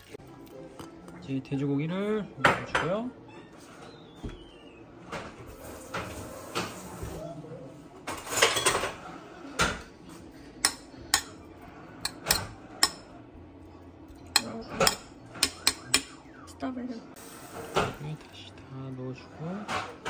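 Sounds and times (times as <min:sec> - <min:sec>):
metal spoon scraping a pot: 0:12.0 - 0:13.0.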